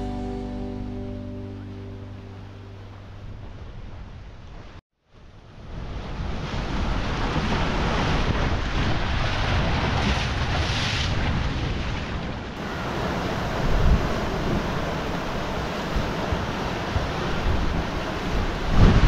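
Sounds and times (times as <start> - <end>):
wind buffeting microphone: 5.6 - 19.0
sea waves breaking on rocks: 6.0 - 19.0.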